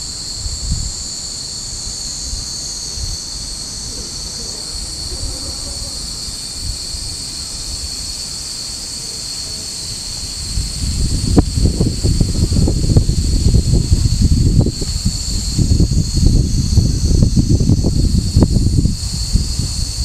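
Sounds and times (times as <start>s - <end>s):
cicadas droning: 0.0s - 20.0s
wind buffeting microphone: 10.1s - 20.0s.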